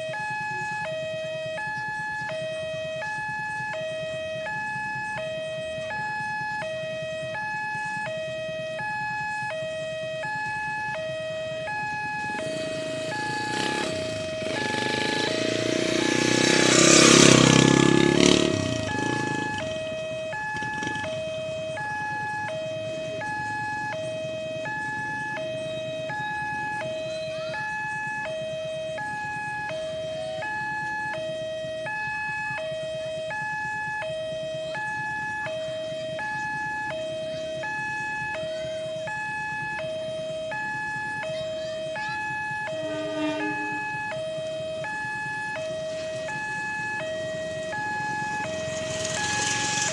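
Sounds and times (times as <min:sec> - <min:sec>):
two-tone level crossing alarm: 0:00.0 - 0:49.9
vehicle rushing past: 0:12.4 - 0:19.6, 0:46.5 - 0:49.9.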